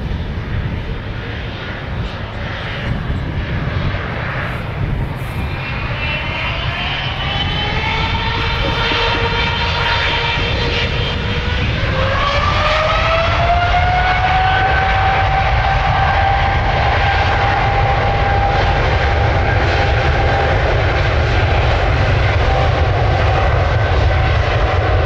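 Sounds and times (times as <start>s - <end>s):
jet engine rumble: 0.0s - 25.0s
jet engine whine rising: 0.0s - 25.0s.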